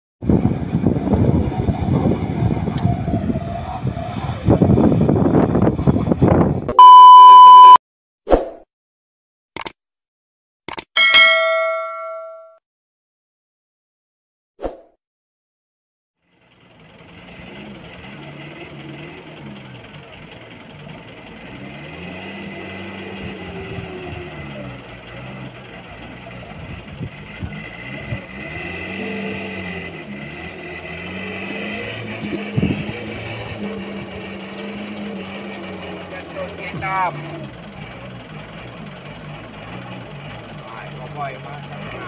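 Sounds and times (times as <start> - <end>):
diesel truck engine revving: 0.2 - 6.7, 16.2 - 42.0.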